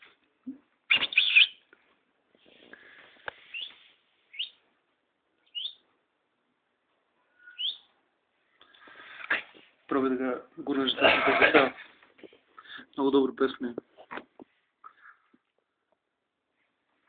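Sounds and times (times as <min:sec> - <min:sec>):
pet bird chirping: 0:00.9 - 0:01.7, 0:03.5 - 0:04.6, 0:05.4 - 0:05.8, 0:07.4 - 0:08.0.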